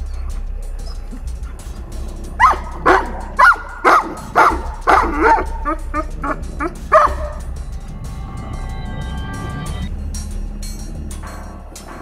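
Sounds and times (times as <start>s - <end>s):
dog yelping: 2.4s - 7.4s.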